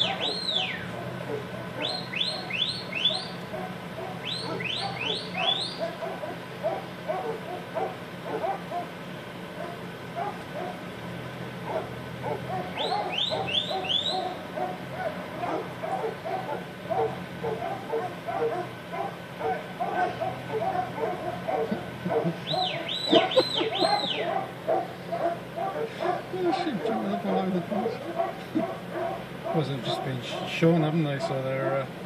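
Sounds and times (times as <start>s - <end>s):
high rising whistle-like calls: 0.0s - 0.9s, 1.8s - 3.4s, 4.2s - 5.9s, 12.7s - 14.4s, 22.4s - 24.3s
car engine idling: 0.0s - 32.0s.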